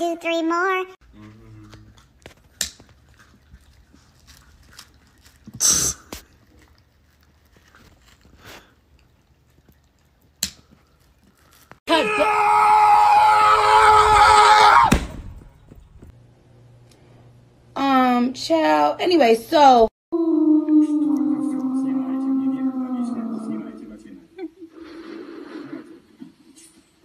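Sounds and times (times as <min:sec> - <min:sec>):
loud high scream: 0:11.9 - 0:15.0.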